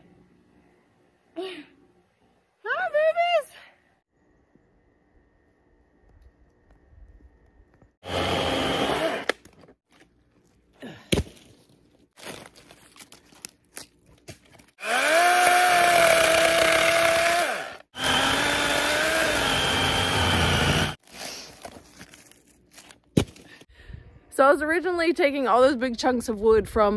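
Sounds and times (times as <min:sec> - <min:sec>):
chainsaw motor whine cutting log: 0:08.0 - 0:09.4, 0:14.8 - 0:21.0.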